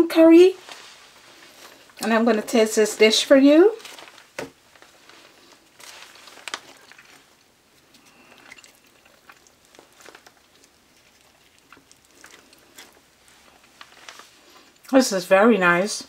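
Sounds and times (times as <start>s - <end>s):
bread tearing rustles: 3.6s - 14.9s.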